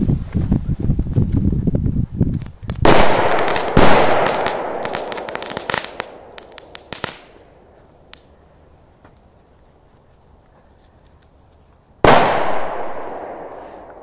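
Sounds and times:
firecrackers banging: 2.8 - 7.6.

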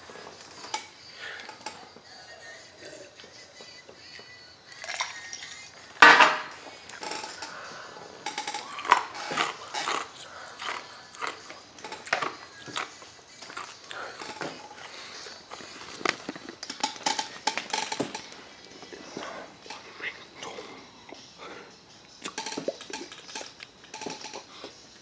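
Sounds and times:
drinking glass clattering: 6.0 - 7.5, 16.6 - 18.4, 22.2 - 24.5.

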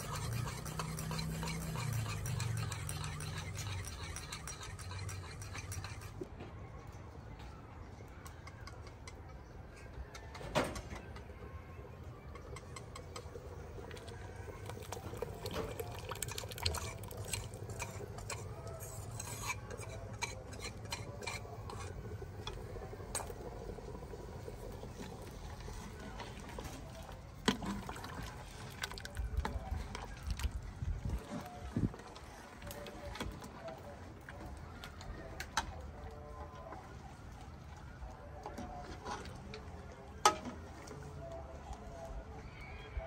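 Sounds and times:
metal utensil scraping a pot: 0.0 - 6.2, 14.5 - 26.8.

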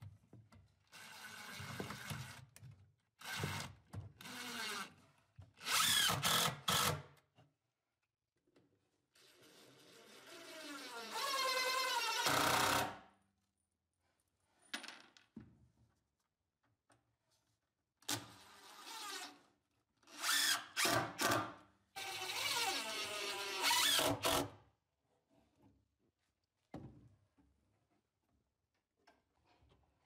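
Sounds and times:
power drill driving screws: 5.6 - 7.0, 10.8 - 12.9, 20.2 - 24.5.

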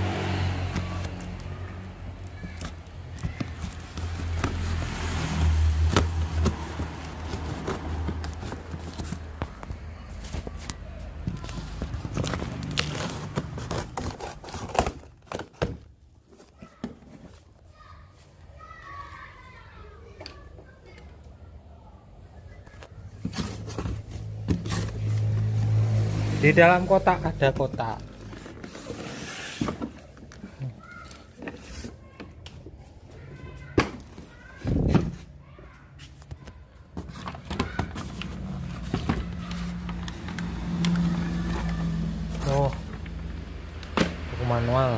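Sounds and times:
cardboard box scraping: 3.3 - 15.6, 23.2 - 26.0, 27.8 - 30.2.

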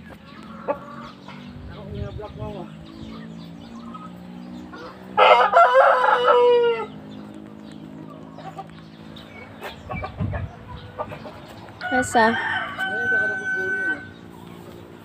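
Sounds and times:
chicken calls: 0.0 - 15.0
rooster crowing: 4.8 - 7.0, 11.8 - 14.2.

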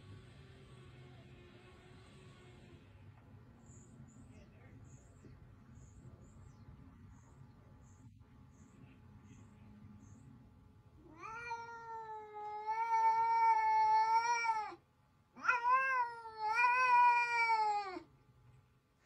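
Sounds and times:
cat yowling: 11.0 - 14.8, 15.4 - 18.1.

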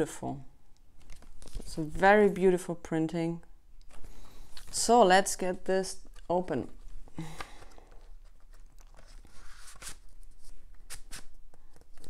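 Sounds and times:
cardboard and paper rustling: 1.0 - 2.0, 6.0 - 12.0.

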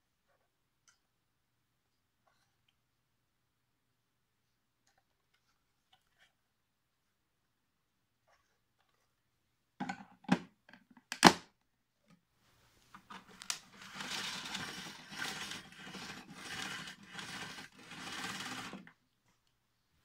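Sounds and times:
power cord being pulled out: 13.0 - 18.9.

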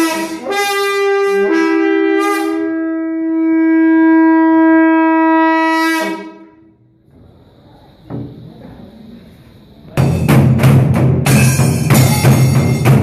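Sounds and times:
conch shell blown: 0.0 - 8.4.

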